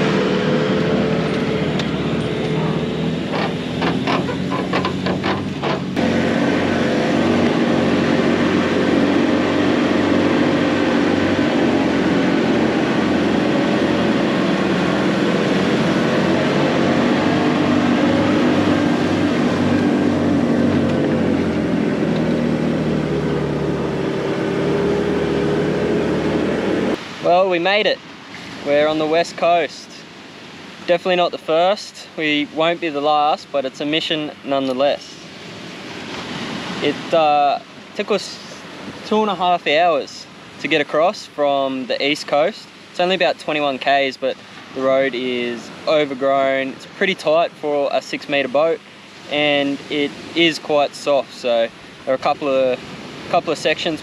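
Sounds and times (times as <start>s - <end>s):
engine running under load: 0.0s - 27.0s.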